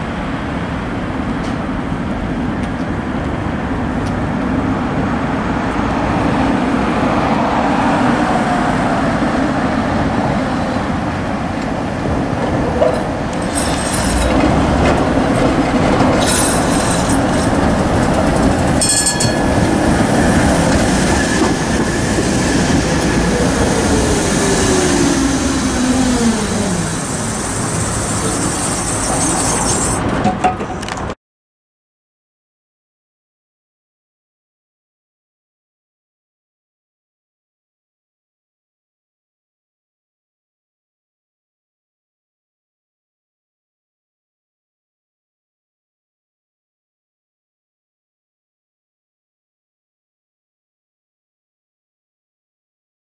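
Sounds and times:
falling whine of slowing tram: 0.0 - 31.2
tram rail rumble: 0.0 - 31.2
wheel squeal: 12.8 - 14.6, 16.2 - 17.6, 23.9 - 30.1
short high-pitched rings: 18.8 - 19.4.

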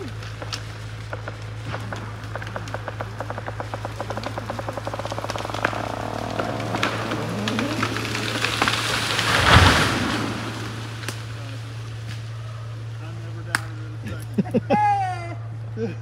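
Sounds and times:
wood cracking snaps: 0.0 - 12.3
tree crashing to ground: 0.0 - 13.1
branches sweeping: 0.0 - 13.3
steady low hum: 0.0 - 16.0.

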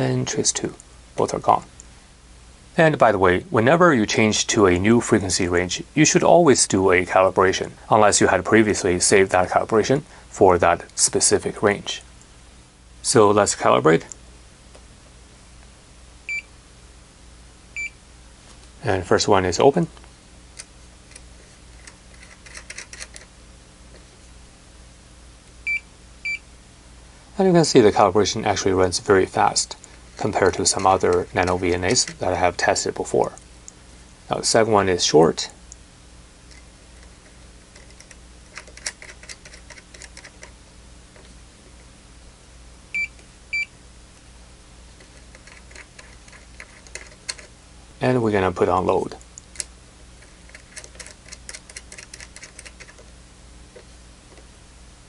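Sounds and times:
small metallic clicks: 37.7 - 40.6, 45.0 - 47.5, 49.2 - 53.0.

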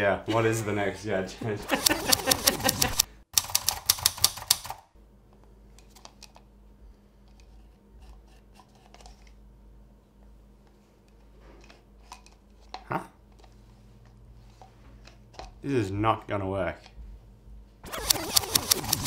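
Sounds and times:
typewriter keys clacking: 1.7 - 4.8.

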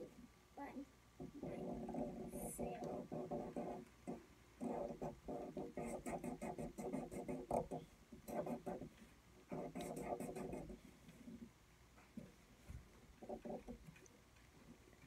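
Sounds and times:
marker scribbling on paper: 1.9 - 8.9, 9.5 - 10.8.

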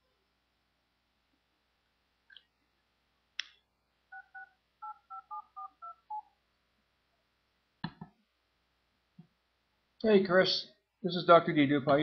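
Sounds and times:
touch-tone keypad beeps: 4.1 - 6.3.

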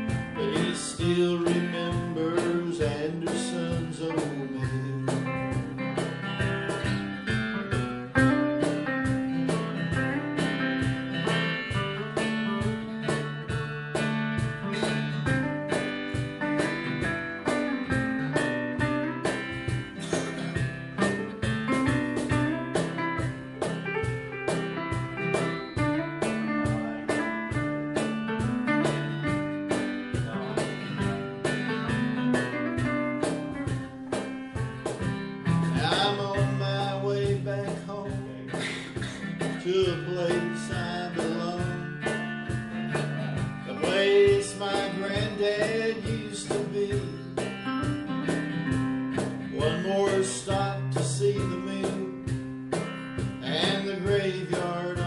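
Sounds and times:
acoustic guitar strumming: 0.0 - 55.0
electric guitar: 0.0 - 55.0.

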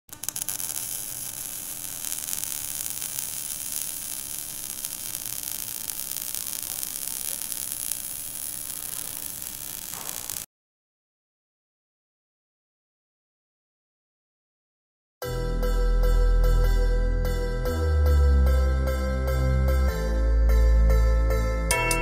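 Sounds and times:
crackles: 0.0 - 10.5
static hiss: 0.1 - 10.5.

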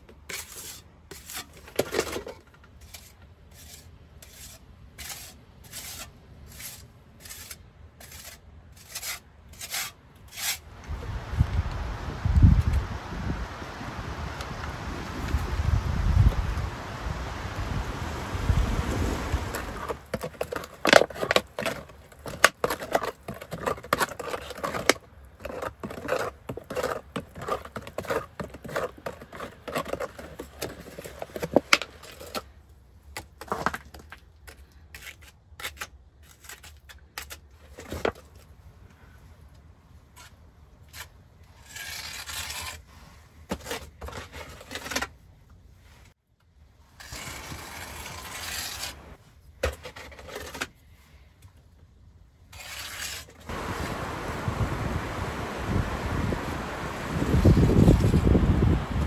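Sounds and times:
mortar scraping onto plaster: 0.0 - 10.7, 19.4 - 32.5, 40.1 - 45.2, 46.9 - 50.9, 52.5 - 54.0, 57.1 - 58.8
hands mixing wet mortar: 19.5 - 32.4.

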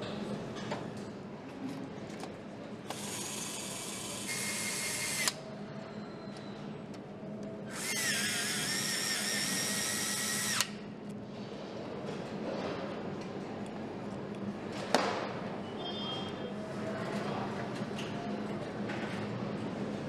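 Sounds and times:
power screwdriver whine: 2.9 - 5.4, 7.7 - 10.8.

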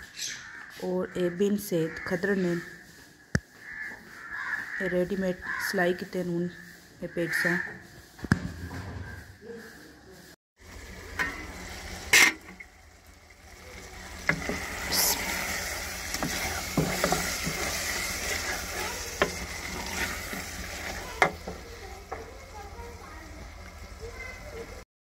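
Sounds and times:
sharp knock: 8.2 - 9.2
curry sizzling: 10.6 - 24.9
spoon scraping a metal pot: 12.1 - 12.5, 14.3 - 21.6.

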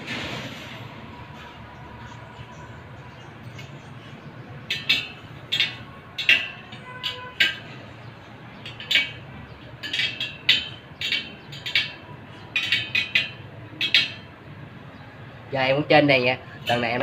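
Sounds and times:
metallic clicks on wheel spokes: 4.6 - 7.9, 8.5 - 14.4.

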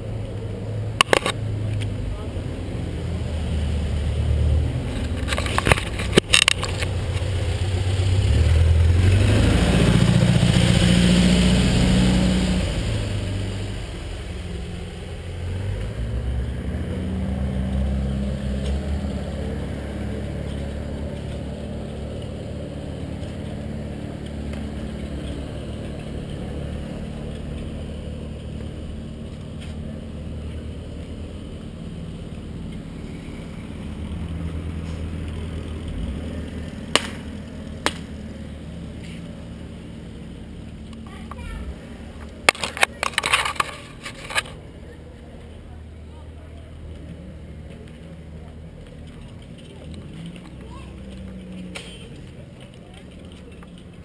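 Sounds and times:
clicks and knocks of bike handling: 1.0 - 1.9, 4.9 - 6.9, 42.2 - 44.6, 49.0 - 54.0
bike rumbling over paving stones: 4.7 - 10.8, 41.1 - 44.7, 46.9 - 54.0.

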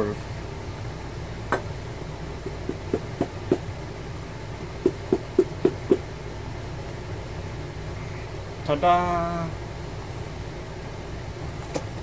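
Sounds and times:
leather case knocking on wood: 2.5 - 3.6.

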